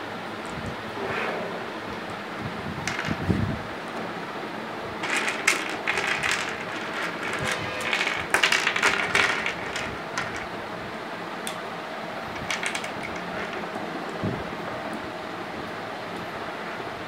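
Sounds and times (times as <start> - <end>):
plastic building blocks clicking: 2.8 - 3.3, 5.0 - 10.6, 12.4 - 13.8.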